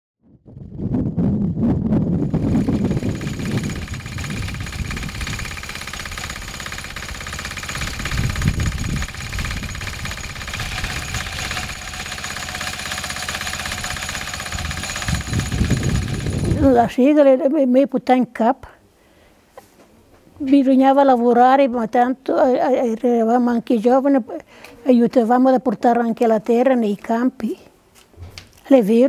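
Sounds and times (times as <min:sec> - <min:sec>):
small engine running: 0:02.2 - 0:16.8.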